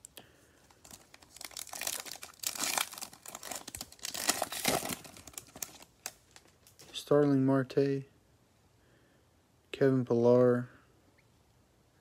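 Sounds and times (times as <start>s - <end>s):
foil card pack crinkling: 0.7s - 7.0s.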